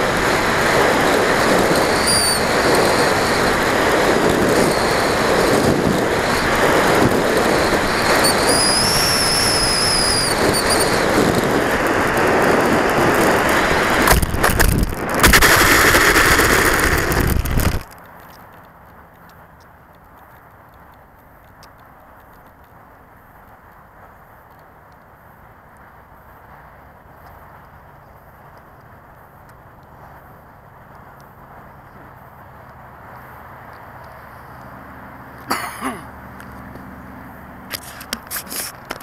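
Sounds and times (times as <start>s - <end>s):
wind rushing: 0.0s - 17.8s
glider scraping across asphalt: 0.0s - 17.9s, 37.7s - 39.0s
thin high whistle: 1.8s - 3.5s, 7.9s - 11.0s.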